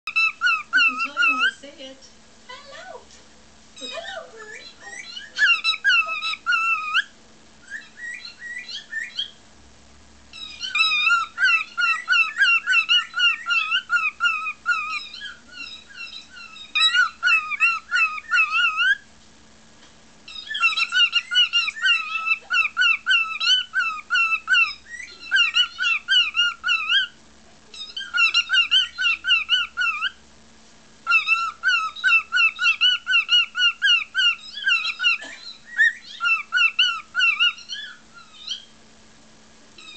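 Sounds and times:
cockatiel whistling song: 0.1 - 1.6, 3.8 - 9.4, 10.3 - 19.0, 20.3 - 30.2, 31.0 - 38.7.

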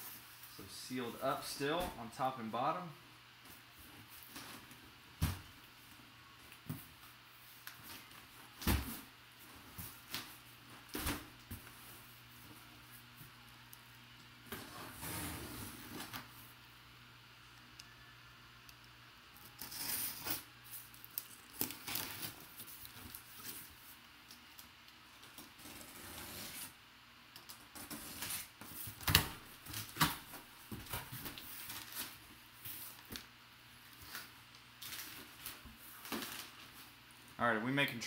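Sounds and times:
packing paper crinkling: 19.4 - 23.7.

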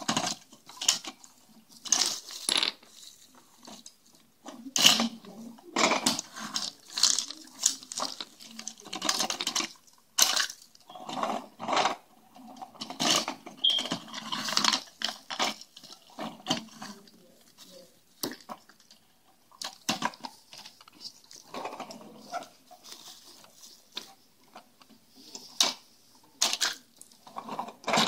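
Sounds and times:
wrappers crinkling: 6.1 - 11.2.

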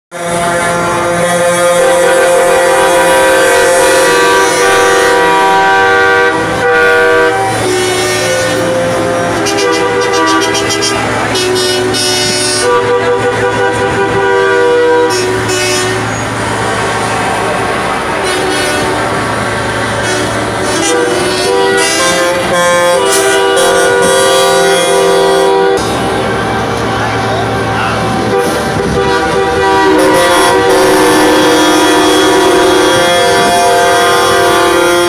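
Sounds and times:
truck air horns blasting: 0.1 - 35.0.

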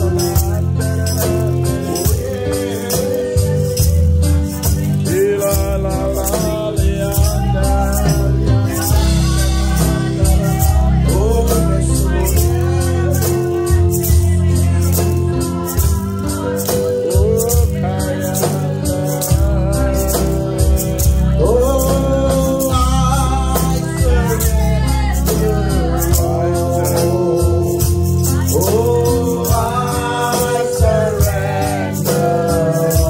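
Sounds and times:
bass line: 0.0 - 33.0
electronic keyboard: 0.0 - 33.0
man and woman singing: 0.0 - 33.0
percussion beat: 0.0 - 33.0.

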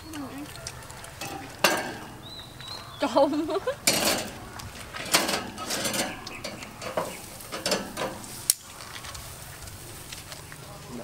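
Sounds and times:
dishes clinking and rustling: 0.1 - 2.5, 3.3 - 9.0.

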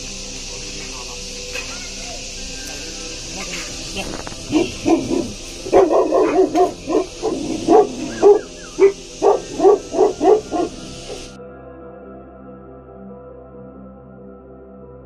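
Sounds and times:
dog barking: 4.4 - 11.4.

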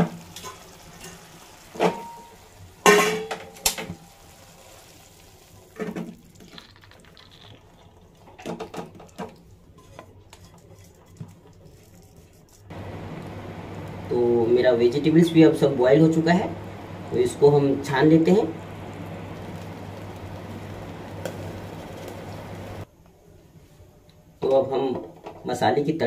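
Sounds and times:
spatula scraping: 9.8 - 12.7.

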